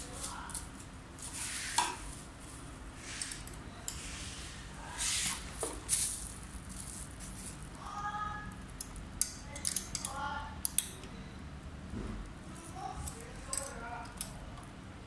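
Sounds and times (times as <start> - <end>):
bubble wrap rustling and crinkling: 0.0 - 2.8, 4.8 - 8.0.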